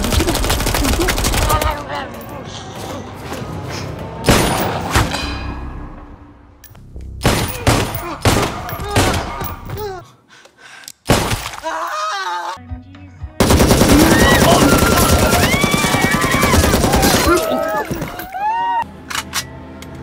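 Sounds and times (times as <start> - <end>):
rapid automatic gunfire: 0.0 - 1.7, 13.4 - 17.3
loud gunshots: 7.2 - 9.4, 13.4 - 17.4
people screaming: 13.9 - 18.9.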